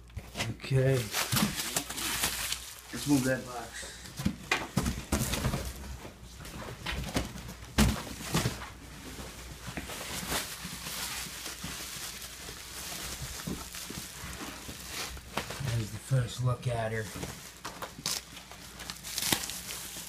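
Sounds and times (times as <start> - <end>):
cardboard box and styrofoam handled: 0.2 - 5.9, 7.0 - 20.0
bubble wrap crinkling: 0.6 - 3.7, 7.1 - 20.0.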